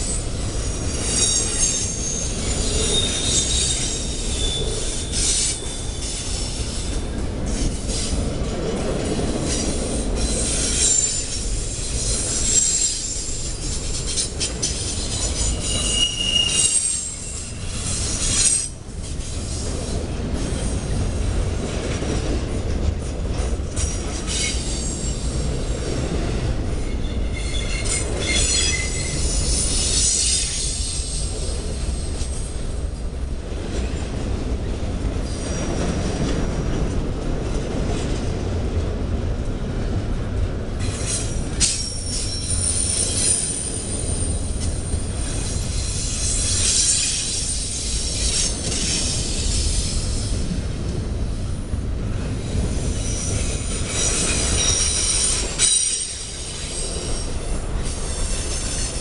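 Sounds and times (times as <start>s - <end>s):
high-pitched wheel squeal: 0.0s - 6.6s, 9.6s - 18.7s, 26.9s - 31.3s, 40.8s - 50.0s, 53.0s - 57.3s
train wheels rumbling on rail: 0.0s - 59.0s.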